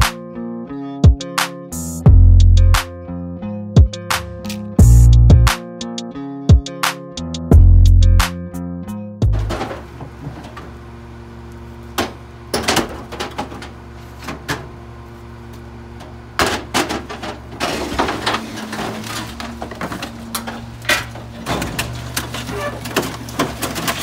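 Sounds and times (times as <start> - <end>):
junk knocking and clattering: 9.2 - 10.8, 12.0 - 14.8, 16.0 - 24.0
garbage truck idling: 9.2 - 24.0.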